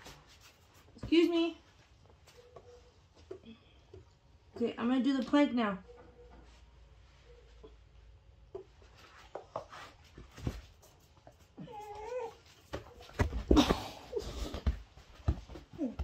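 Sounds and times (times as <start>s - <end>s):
dogs thumping and scuffling: 8.6s - 16.0s.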